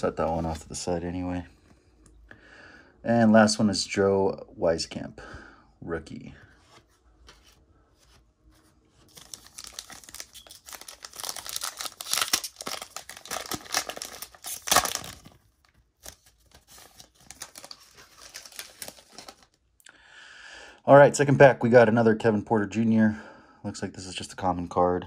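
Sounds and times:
cards rustling and clicking: 6.7s - 19.6s
card pack wrapper crinkling and tearing: 9.0s - 19.6s.

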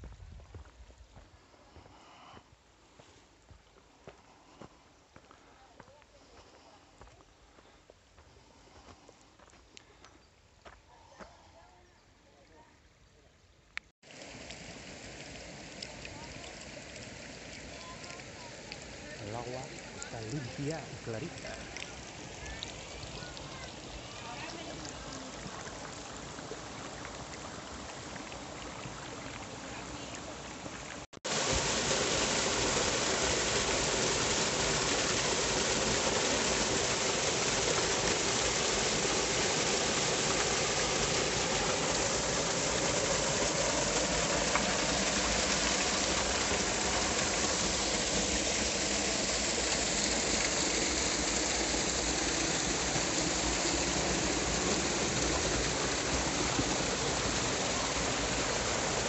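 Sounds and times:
stream flowing over rock: 14.0s - 59.0s
waterfall splashing into pool: 14.0s - 59.0s.

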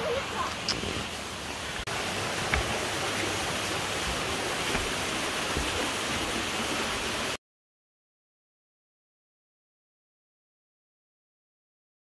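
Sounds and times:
waterfall rushing: 0.0s - 7.4s
soft thumps: 4.0s - 6.2s.

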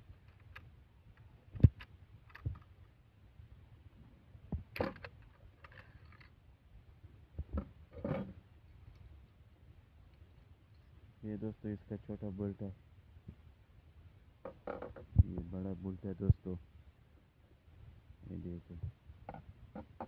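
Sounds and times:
rifle bolt metal clicks and clacks: 4.7s - 6.3s.

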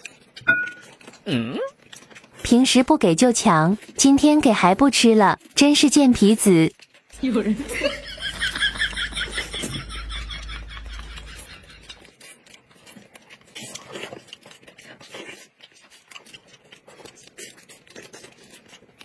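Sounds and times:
wet chewing and lip smacks: 0.0s - 2.5s, 6.7s - 7.2s, 10.8s - 19.0s
person laughing: 7.2s - 12.0s.

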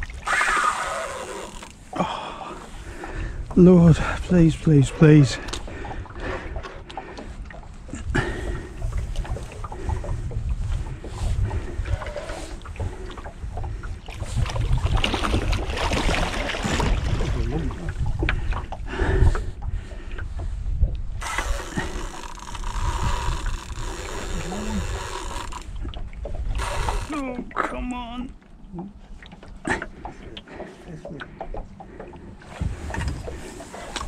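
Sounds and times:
fish thrashing and splashing in water: 8.3s - 18.7s.

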